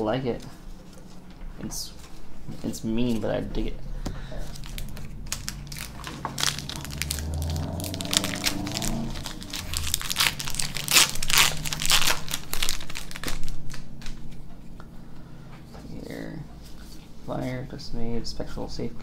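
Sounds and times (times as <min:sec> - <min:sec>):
plastic wrapper crinkling and tearing: 0:04.3 - 0:14.2.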